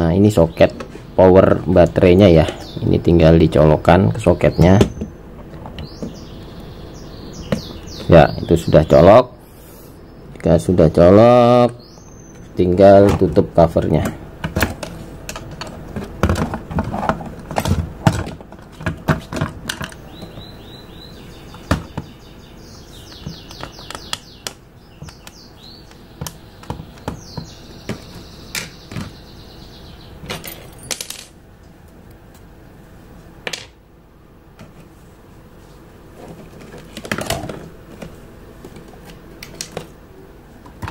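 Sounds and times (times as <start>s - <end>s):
plastic scraping on plastic: 36.1s - 39.9s.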